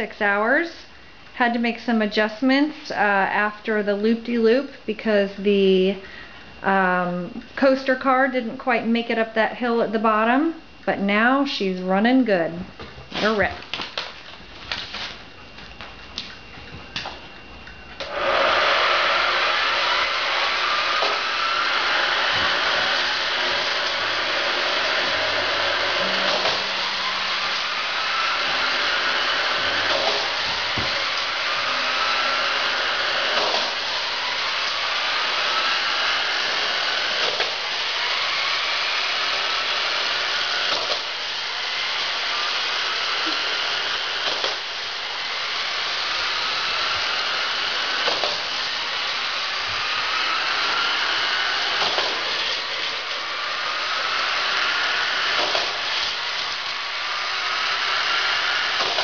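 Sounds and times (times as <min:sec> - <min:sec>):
motor whine rising in pitch: 0:14.7 - 0:59.0.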